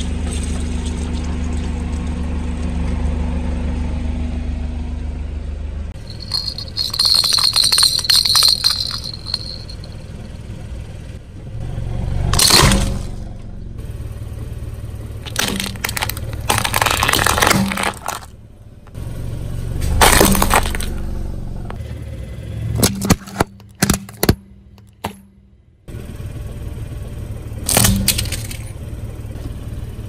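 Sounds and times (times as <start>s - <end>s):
low engine hum: 0.0s - 30.0s
plastic toys crunching under tyre: 12.4s - 13.1s, 15.2s - 19.0s, 19.8s - 21.1s, 22.8s - 25.1s, 27.7s - 28.7s.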